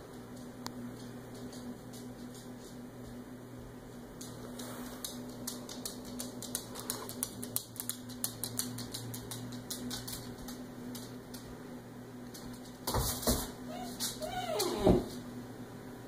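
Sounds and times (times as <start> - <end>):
steady low hum: 0.0 - 14.3, 15.0 - 16.0
dog claws clicking on wood floor: 4.2 - 11.5.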